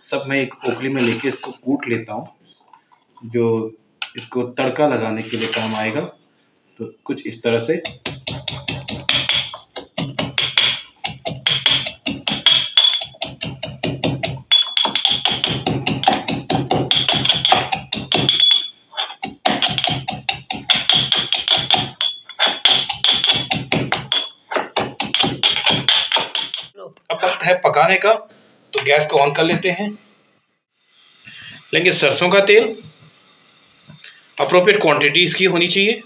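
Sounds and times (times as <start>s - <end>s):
pestle pounding in steel mortar: 7.7s - 26.8s.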